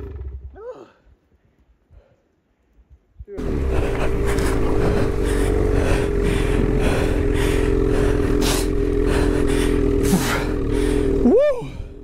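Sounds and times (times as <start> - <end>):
snowmobile engine running: 3.4 - 12.0.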